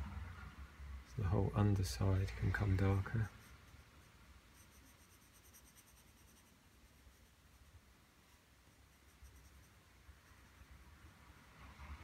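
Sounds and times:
low room hum: 0.0 - 12.0
pencil scratching on paper: 2.6 - 10.7.

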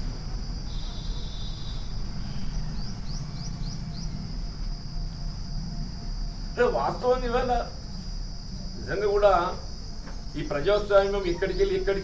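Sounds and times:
insects buzzing: 0.0 - 12.0
low rumbling noise: 1.6 - 12.0
bird chirping: 2.2 - 4.4.

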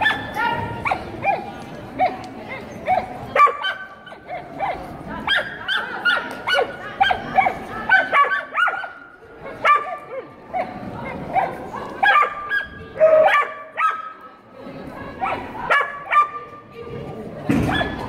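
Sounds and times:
dog barking in high yips: 0.0 - 2.2, 2.9 - 10.8, 11.4 - 14.2.

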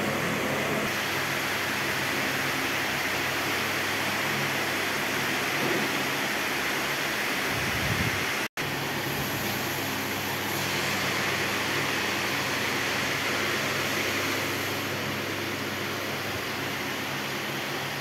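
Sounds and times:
machinery hum and hiss: 0.0 - 18.0.

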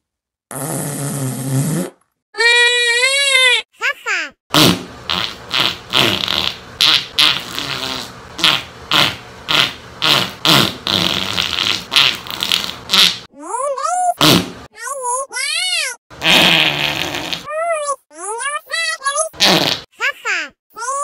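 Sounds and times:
cartoon fart sound effects: 0.5 - 2.0, 4.5 - 13.3, 14.2 - 14.7, 16.2 - 17.5, 19.4 - 19.9.

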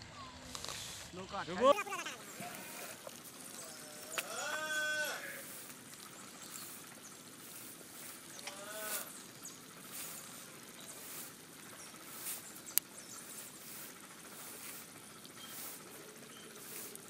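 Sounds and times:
faint water splashing: 0.2 - 17.0
farm animal bleating: 1.5 - 5.6, 8.3 - 9.2.

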